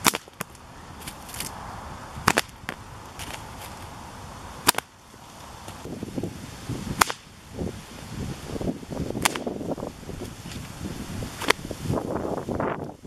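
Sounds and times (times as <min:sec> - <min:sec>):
whip cracking: 0:00.0 - 0:00.5, 0:04.6 - 0:04.9, 0:07.0 - 0:07.3, 0:09.2 - 0:09.5.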